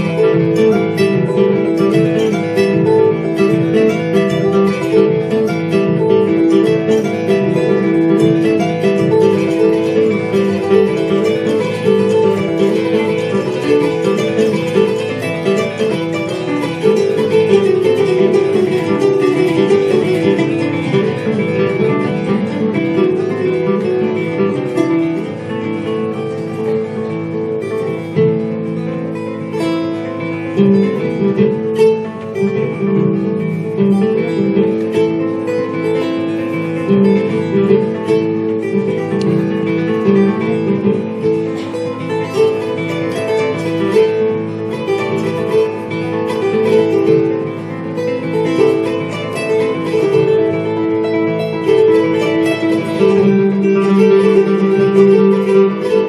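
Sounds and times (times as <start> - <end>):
acoustic guitar and kora playing: 0.0 - 56.0.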